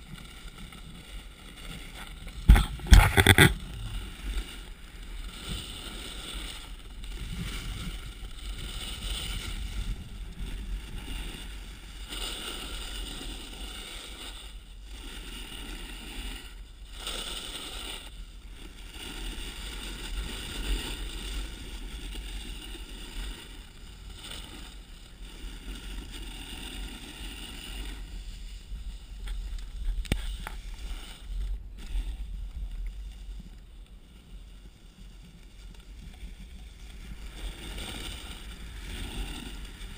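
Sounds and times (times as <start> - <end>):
snowboard sliding on snow: 0.0 - 39.9.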